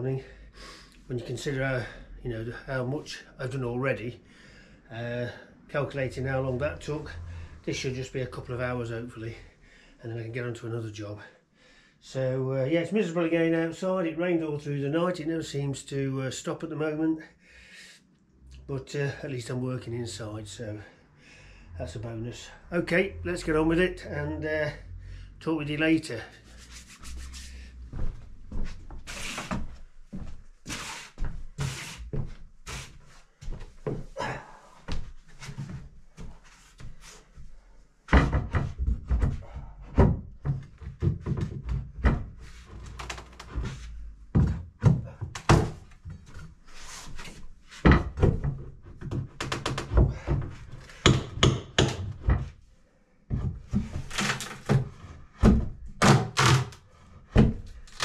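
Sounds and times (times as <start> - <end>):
floorboards being prised up: 38.1 - 52.6, 53.3 - 58.0.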